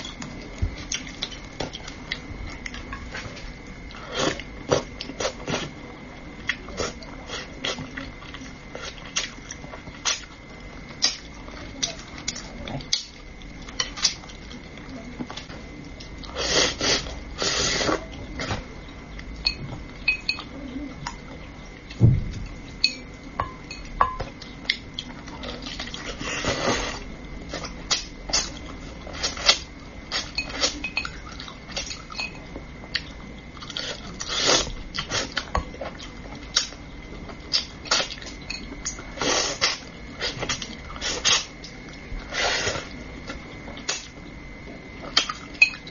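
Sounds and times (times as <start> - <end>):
sucking and slurping: 42.2 - 43.0.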